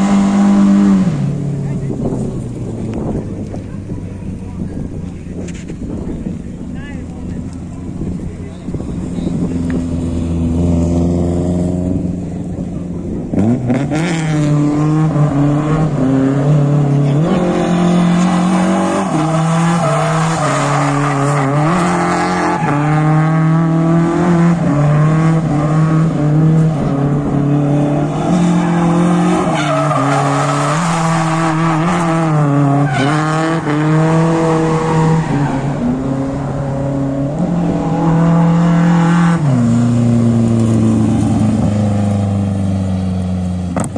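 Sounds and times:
car engine revving hard: 13.2 - 42.6
tyres squealing: 17.4 - 23.2, 28.1 - 31.9.

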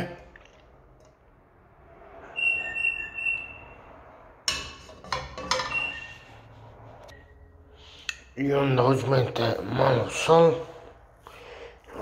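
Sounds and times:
pan ringing high tone: 2.2 - 4.0
metal baking pan clanking: 4.5 - 6.0.

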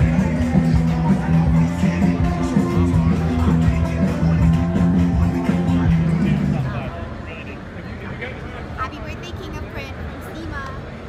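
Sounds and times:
background music with bass line: 0.0 - 6.9.

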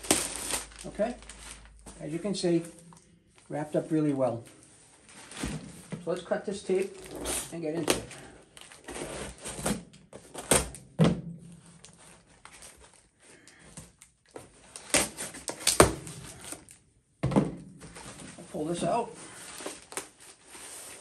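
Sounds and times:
cardboard scraping and rustling: 0.0 - 1.7, 4.9 - 10.6, 17.8 - 21.0
knife cutting packing tape: 14.7 - 16.7.

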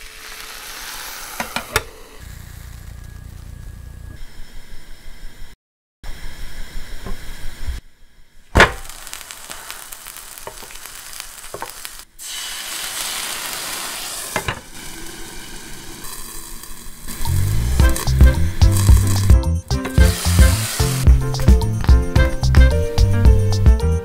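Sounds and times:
water sizzling in hot pan: 0.0 - 3.6, 8.6 - 23.1
sandwich sizzling in a pan: 0.0 - 3.9, 8.6 - 23.0.

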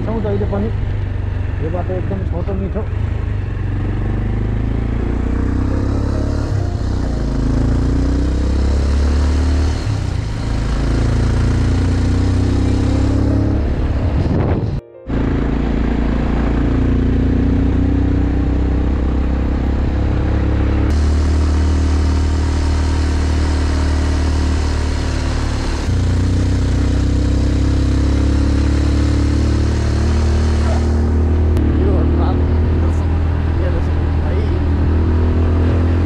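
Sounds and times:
motorcycle engine cruising: 0.0 - 36.0
wind noise on microphone: 13.7 - 14.8.

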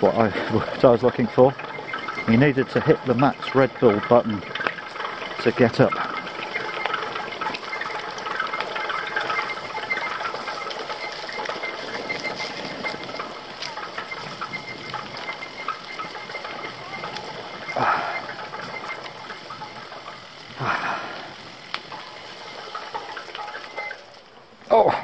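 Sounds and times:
bike rattling over dirt path: 0.0 - 25.0
faint steady whine: 0.0 - 25.0.

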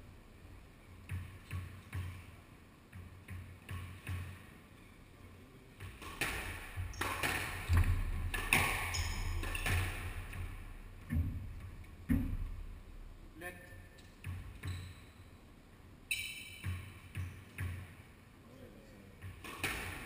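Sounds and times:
squash ball hits: 1.0 - 4.5, 5.8 - 12.8, 16.5 - 18.0, 19.2 - 20.0.

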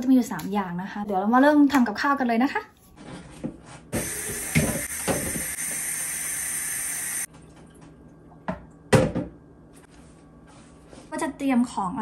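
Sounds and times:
kitchen tap running: 4.0 - 7.3.

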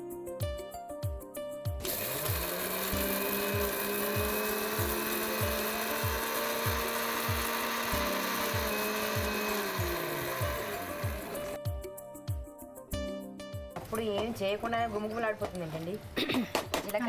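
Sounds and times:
background music with steady beat: 0.0 - 17.0
mixer grinder motor running: 1.8 - 11.6.

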